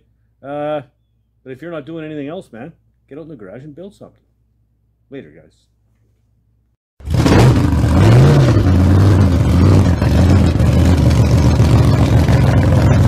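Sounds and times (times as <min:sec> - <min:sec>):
engine idling and revving: 0:07.0 - 0:13.0.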